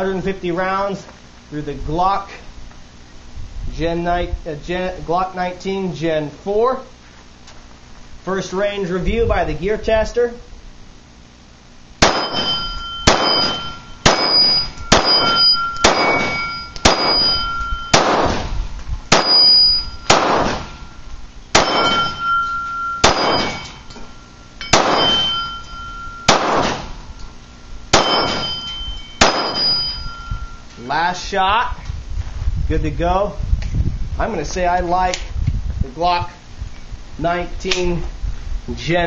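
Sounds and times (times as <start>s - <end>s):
pistol shots: 12.0s - 20.8s, 21.5s - 22.2s, 23.0s - 23.8s, 24.7s - 25.4s, 26.3s - 27.0s, 27.9s - 29.9s
steel target ringing: 12.0s - 31.0s.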